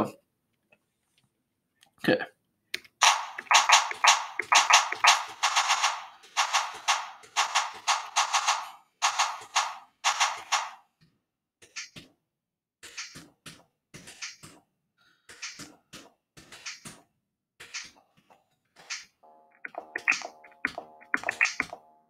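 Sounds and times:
sharp percussion hits: 3.0s - 10.8s, 19.6s - 21.8s
sustained keys sample: 19.2s - 22.0s.

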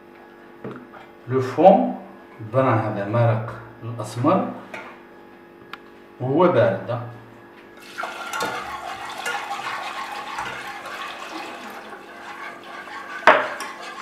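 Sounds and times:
liquid pouring into a saucepan: 7.8s - 14.0s
whisk clinking: 7.8s - 14.0s.

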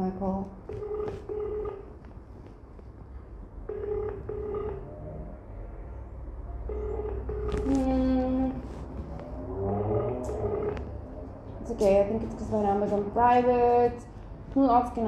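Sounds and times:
phone ring-back tone: 0.7s - 1.9s, 3.7s - 5.0s, 6.7s - 8.2s, 9.8s - 10.9s.

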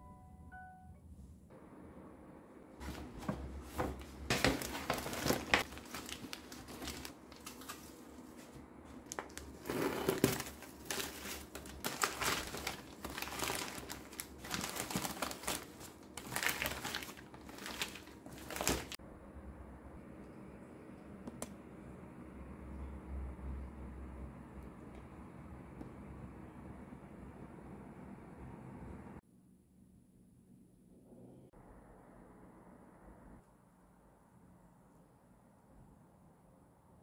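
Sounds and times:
plastic and paper wrapping crackling: 2.8s - 19.0s.

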